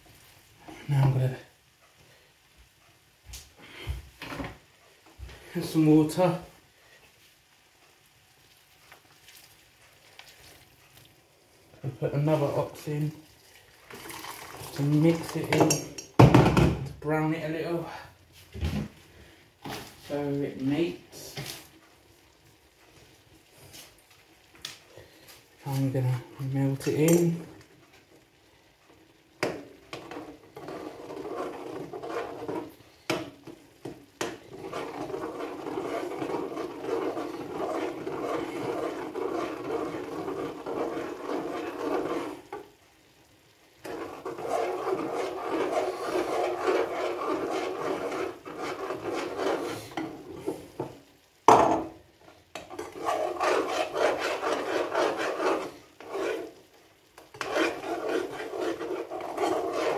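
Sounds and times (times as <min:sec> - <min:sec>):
utensil scraping while stirring: 0:29.4 - 0:42.7, 0:43.8 - 0:51.0, 0:52.6 - 0:59.9.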